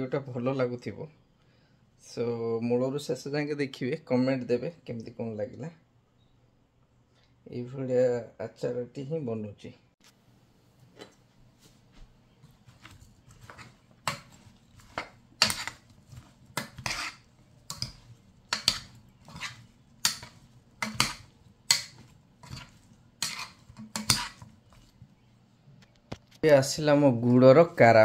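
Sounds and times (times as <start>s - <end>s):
mango pieces scraping a pot: 12.4s - 25.0s.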